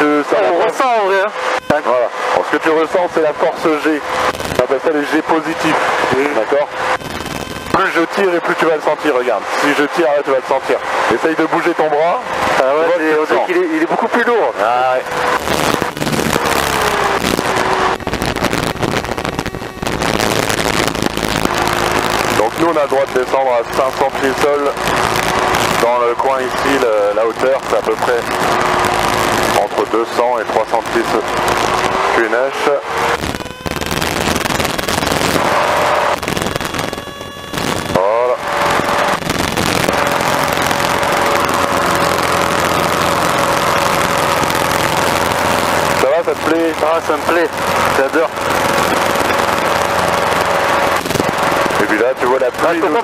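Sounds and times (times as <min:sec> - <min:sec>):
aircraft engine drone: 0:00.0 - 0:53.0
high propeller whine: 0:00.0 - 0:53.0
wind noise on microphone: 0:05.8 - 0:07.8, 0:15.1 - 0:22.6, 0:32.9 - 0:46.0, 0:47.6 - 0:51.8.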